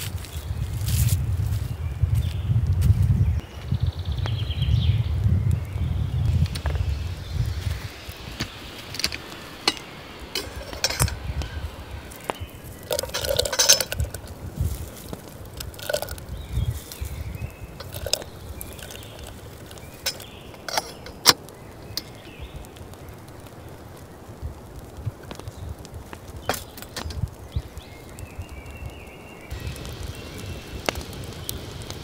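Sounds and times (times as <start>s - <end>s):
dry bits tipped into kettle: 8.4s - 22.2s, 26.4s - 27.3s
kettle lid and handle clinking: 8.9s - 11.6s, 12.8s - 14.3s, 15.6s - 16.2s, 17.8s - 19.1s, 19.7s - 21.4s
rattling: 8.9s - 14.3s, 15.6s - 16.2s, 17.8s - 21.4s.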